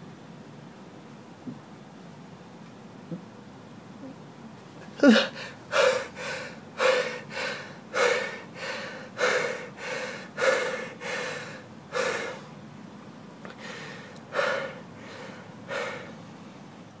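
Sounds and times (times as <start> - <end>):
man's forceful breaths: 5.0 - 12.6, 13.5 - 16.4.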